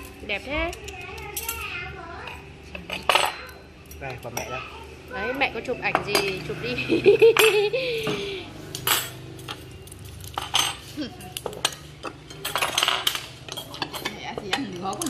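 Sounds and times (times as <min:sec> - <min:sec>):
cutlery and dishes clinking: 0:00.0 - 0:04.7, 0:05.9 - 0:06.6, 0:08.7 - 0:15.0.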